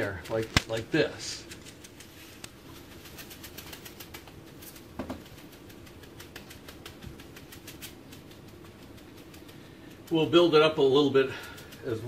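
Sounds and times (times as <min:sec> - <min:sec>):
knock: 0:05.0 - 0:05.2.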